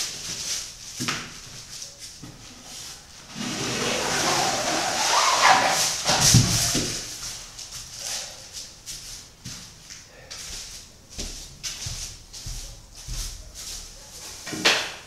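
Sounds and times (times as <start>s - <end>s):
wooden slat scraping canvas: 3.3s - 7.1s.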